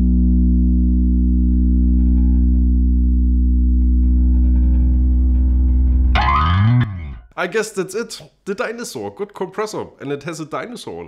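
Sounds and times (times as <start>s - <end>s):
electric bass low note: 0.0s - 7.3s
bright sliding pitch sound: 3.8s - 7.2s.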